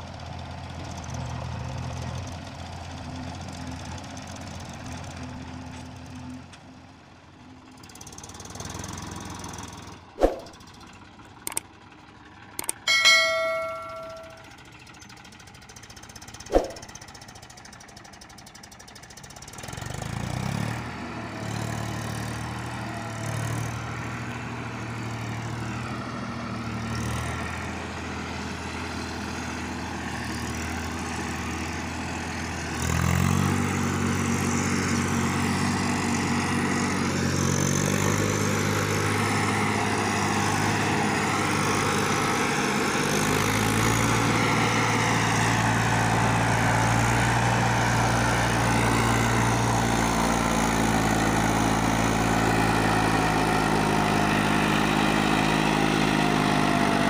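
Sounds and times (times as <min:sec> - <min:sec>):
diesel engines running: 0:00.0 - 0:57.0
sound effect pops and clicks: 0:10.2 - 0:10.6, 0:16.5 - 0:16.9
bell chime: 0:12.8 - 0:14.6.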